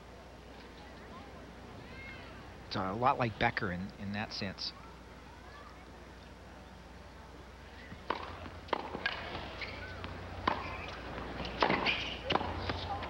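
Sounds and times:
broadcast hum: 0.0s - 13.0s
low crowd murmur: 0.0s - 13.0s
tennis ball hit by racket: 8.0s - 13.0s.

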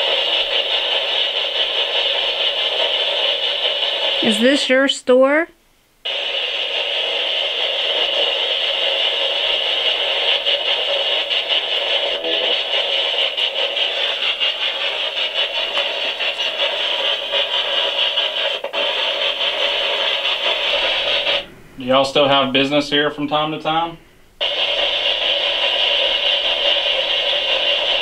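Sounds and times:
choppy radio static: 0.0s - 5.4s, 6.1s - 23.8s, 24.4s - 28.0s.

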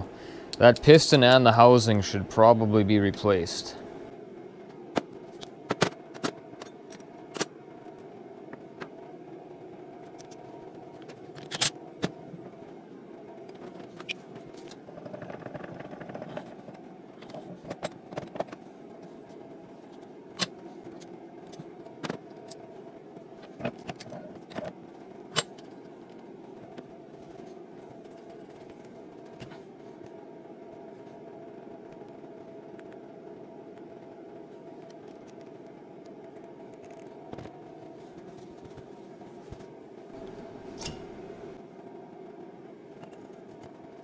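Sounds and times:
steady low hum: 0.0s - 44.0s
metal tools clinking: 40.2s - 41.4s.

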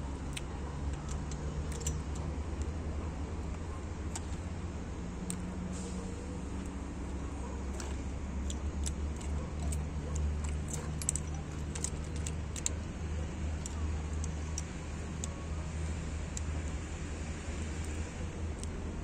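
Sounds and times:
metallic clinks and ticks: 0.3s - 2.7s, 7.7s - 15.4s.

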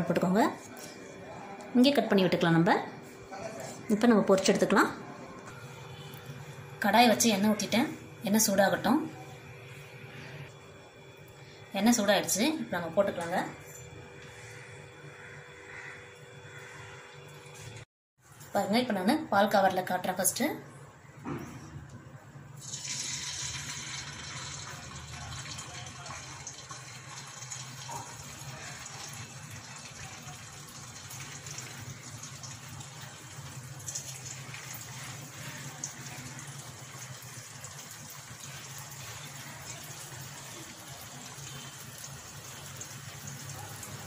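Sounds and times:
batter sizzling in hot oil: 22.6s - 44.0s.

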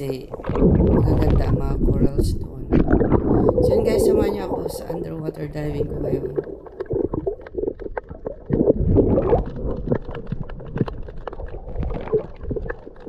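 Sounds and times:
muffled underwater water rumble: 0.0s - 13.0s
small crackling clicks: 6.3s - 13.0s.

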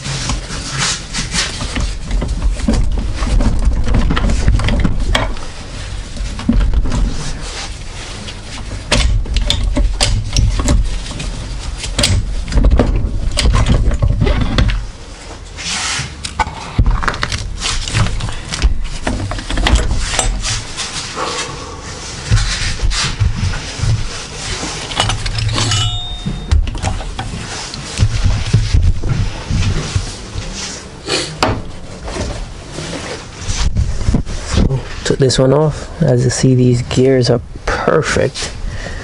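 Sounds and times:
handling knocks: 22.2s - 30.4s
metal gear shafts clinking: 24.9s - 26.8s.

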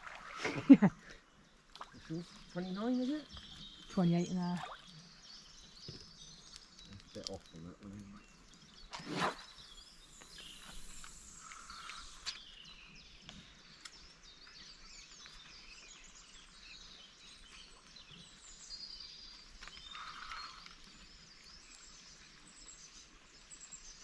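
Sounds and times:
songbirds chirping and trilling: 0.0s - 24.0s.

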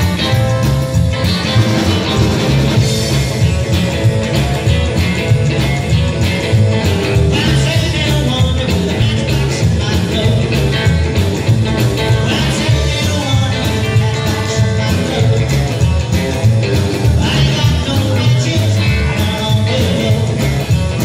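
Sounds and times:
drum kit: 0.0s - 21.0s
electric guitar: 0.0s - 21.0s
upright double bass: 0.0s - 21.0s.

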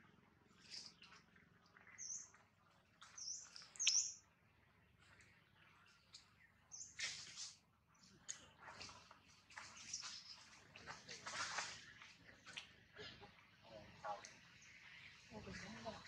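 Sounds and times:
small birds chirping: 0.0s - 16.0s
brief rustle: 7.0s - 7.6s.

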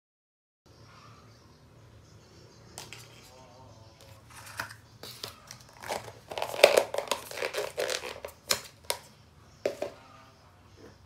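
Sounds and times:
plastic container crinkling: 4.0s - 9.1s.

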